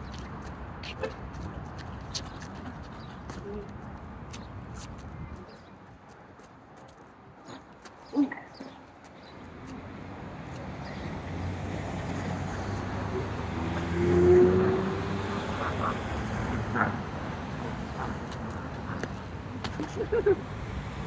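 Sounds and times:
road traffic passing: 0.0 - 21.0.

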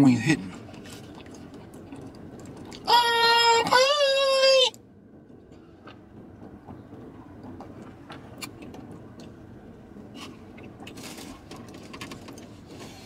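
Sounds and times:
low hum in car cabin: 0.0 - 13.0.

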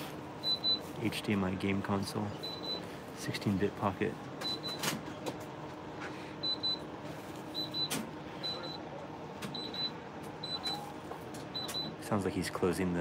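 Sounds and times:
cash register beeps: 0.0 - 1.3, 2.3 - 3.3, 4.4 - 5.4, 6.4 - 12.1
shop hum: 0.0 - 13.0.

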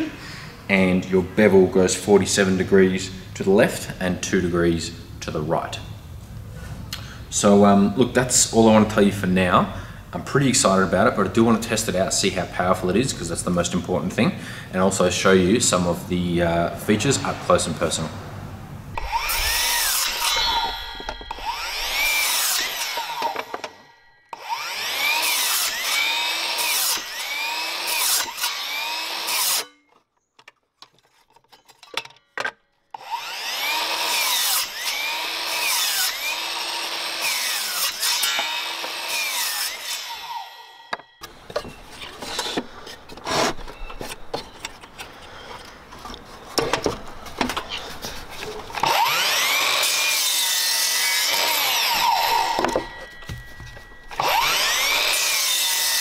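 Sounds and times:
mitre saw cutting timber: 19.0 - 29.8, 33.0 - 41.3, 43.2 - 43.6, 48.8 - 56.0
wood clattering and knocking: 46.0 - 47.7.

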